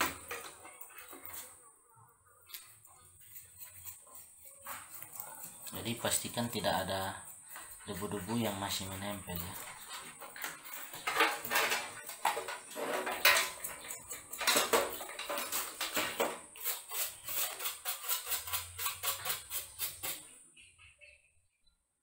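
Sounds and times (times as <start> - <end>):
brush scrubbing metal case: 3.2 - 15.8.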